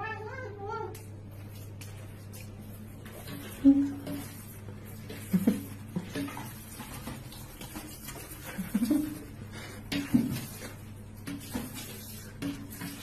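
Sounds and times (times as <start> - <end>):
cat meowing: 0.0 - 1.0.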